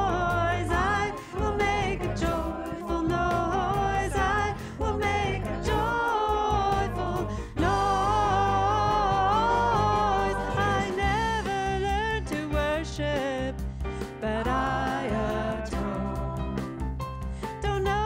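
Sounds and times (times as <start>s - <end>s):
women's backing choir: 0.0s - 11.6s, 14.4s - 16.8s
woman singing lead: 0.0s - 16.7s
bass: 0.0s - 18.0s
piano: 0.0s - 18.0s.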